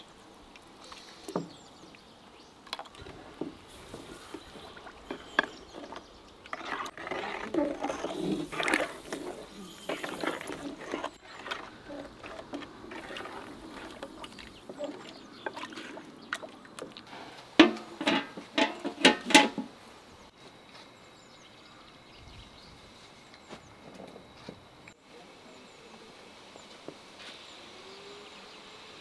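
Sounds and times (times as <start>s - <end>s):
juice sloshing while stirred: 2.6s - 19.2s
metal lid clanking on pot: 17.6s - 19.7s.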